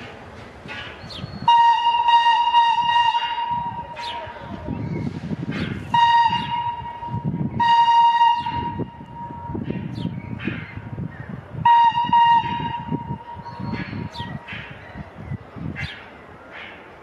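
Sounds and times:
steam locomotive whistle blasts: 0:01.4 - 0:04.2, 0:05.9 - 0:09.6, 0:11.6 - 0:13.4.

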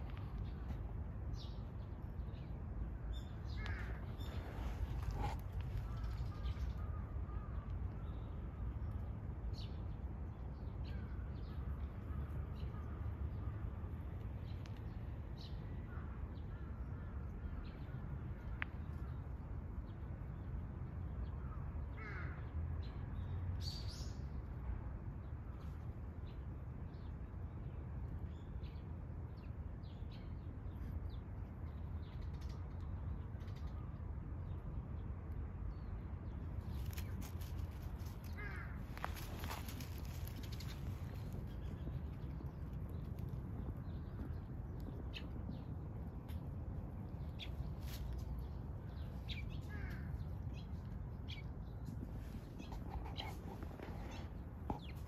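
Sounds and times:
crows cawing: 0:03.6 - 0:04.1, 0:22.0 - 0:22.4, 0:38.3 - 0:39.1, 0:49.7 - 0:50.1
steady low rumble: 0:30.2 - 0:55.0.

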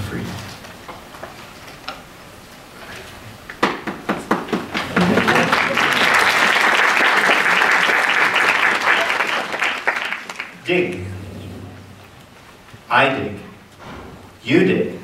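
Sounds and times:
audience applauding: 0:03.7 - 0:11.1.

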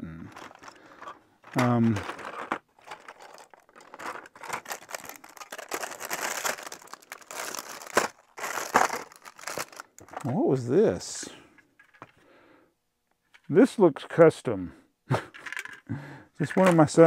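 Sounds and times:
plastic pieces clicking and rattling: 0:00.3 - 0:10.3, 0:15.4 - 0:17.0
plastic bags crinkling: 0:00.3 - 0:10.4.

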